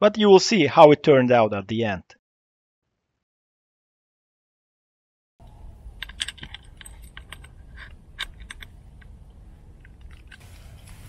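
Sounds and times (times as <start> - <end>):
camera gear clicking and rattling: 6.0 - 9.1.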